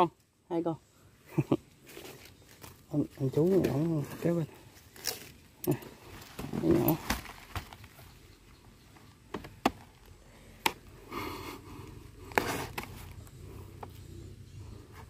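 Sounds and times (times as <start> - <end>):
plastic sack rustling: 1.8 - 8.1.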